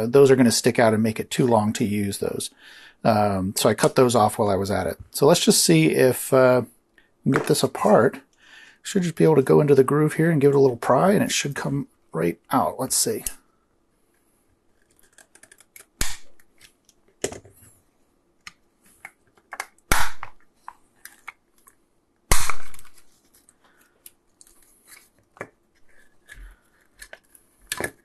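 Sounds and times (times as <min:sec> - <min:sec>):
plastic cracking: 0:22.5 - 0:28.0.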